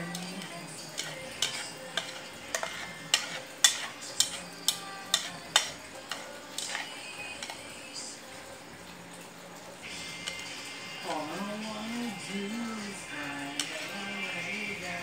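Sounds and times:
chopsticks tapping ceramic bowl: 0.1 - 7.6.

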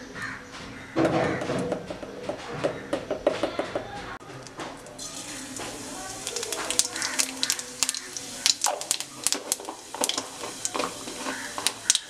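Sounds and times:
seeds sizzling and crackling in oil: 5.0 - 12.0.

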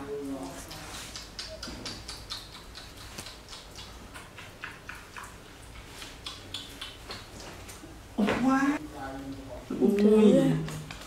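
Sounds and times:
lips smacking: 0.4 - 7.6.

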